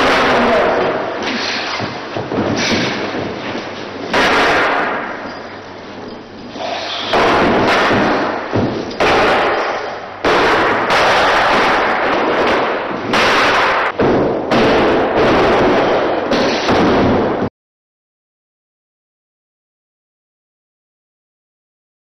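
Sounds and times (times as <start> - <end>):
loud crashing bangs: 0.0 - 5.3, 6.7 - 17.5.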